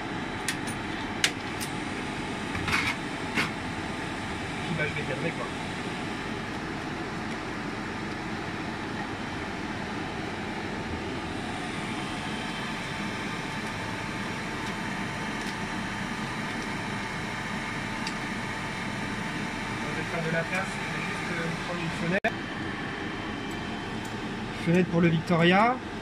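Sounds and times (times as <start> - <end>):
fan and machine hum: 0.0 - 26.0.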